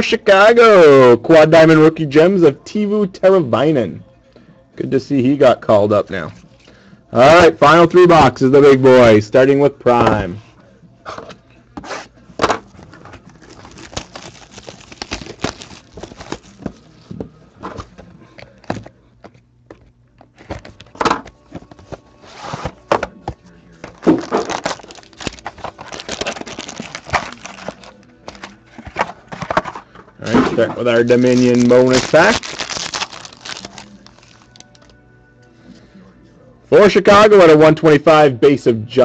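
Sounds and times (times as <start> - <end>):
plastic wrap crinkling and tearing: 12.9 - 16.9, 24.0 - 29.6, 30.8 - 34.9.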